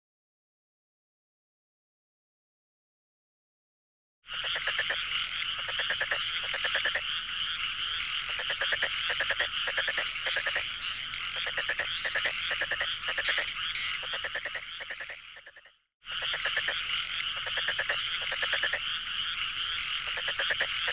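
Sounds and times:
frogs trilling chorus: 4.3s - 20.9s
rapid pulsed frog croaks: 4.3s - 20.9s.

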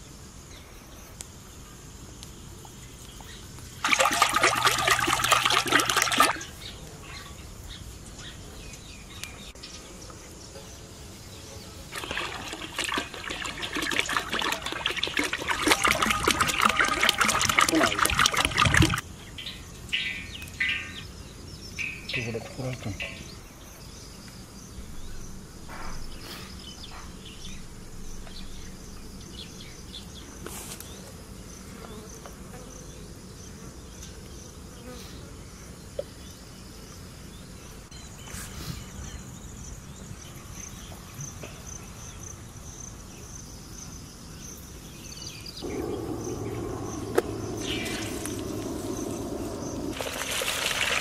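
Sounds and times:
insects chirping: 0.0s - 51.0s
steady rushing noise: 45.6s - 51.0s.

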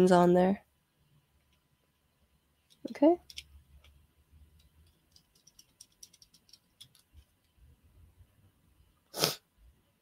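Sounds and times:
screwdriver ticks and clicks: 2.7s - 4.0s, 4.6s - 7.3s.

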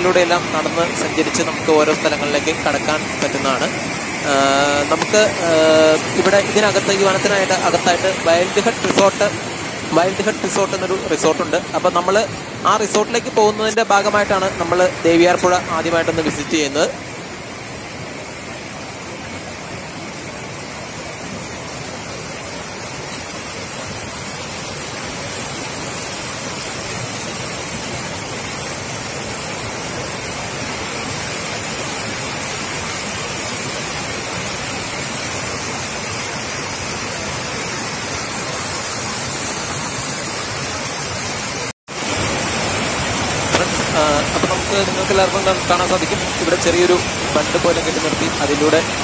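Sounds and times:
river rushing over rocks: 0.0s - 49.0s.

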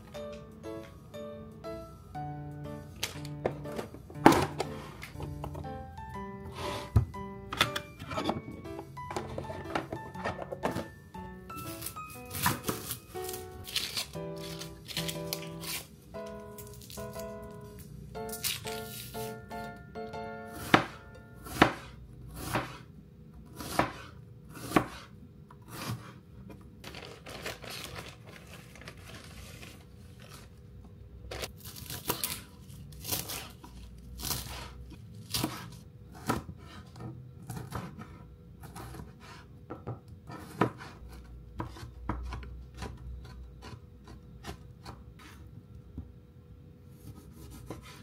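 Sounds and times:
knife chopping on cutting board: 20.5s - 22.9s, 23.5s - 25.1s, 25.7s - 26.2s, 33.0s - 45.4s, 47.0s - 48.0s.

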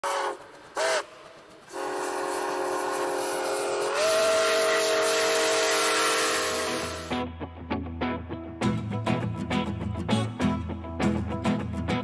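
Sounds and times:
steam locomotive chime whistle: 0.0s - 7.2s.

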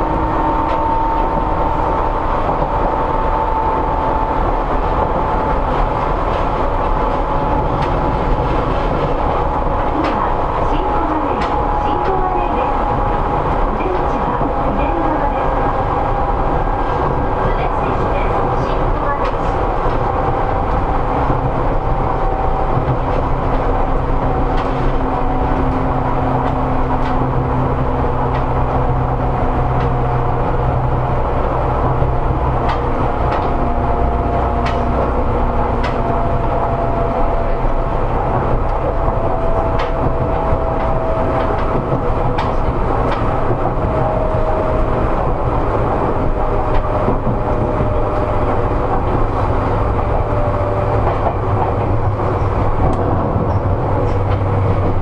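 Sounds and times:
train rumble: 0.0s - 55.0s
wheels clacking over rail joints: 16.5s - 55.0s.

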